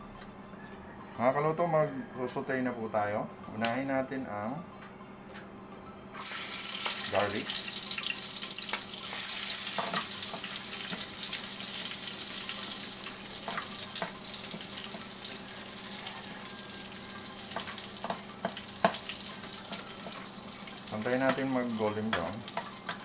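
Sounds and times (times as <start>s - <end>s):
garlic sizzling in oil: 6.2s - 23.0s.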